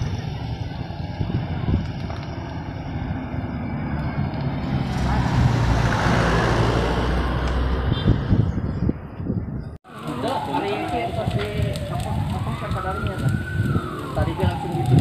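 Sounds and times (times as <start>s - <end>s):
road traffic noise: 0.0s - 15.0s
truck driving past: 2.3s - 8.4s.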